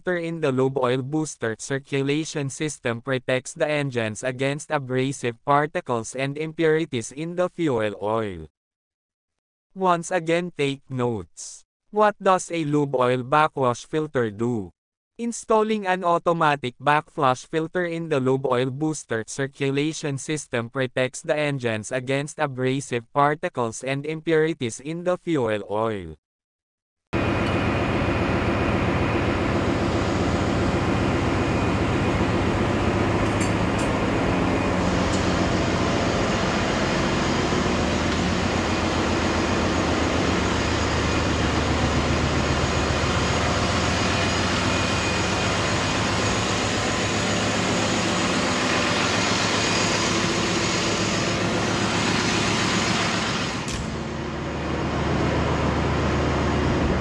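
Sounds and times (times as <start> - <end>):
engine-room machinery drone: 27.2 - 57.0.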